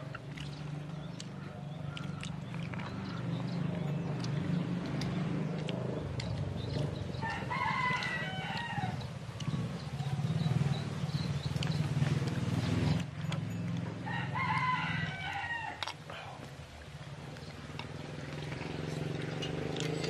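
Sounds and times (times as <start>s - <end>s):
rooster crowing: 7.2s - 9.1s, 14.0s - 15.9s.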